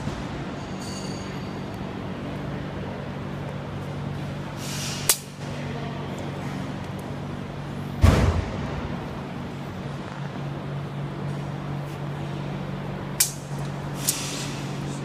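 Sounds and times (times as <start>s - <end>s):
steady low hum: 0.0s - 15.0s
loud thump with brief hiss: 8.0s - 8.7s.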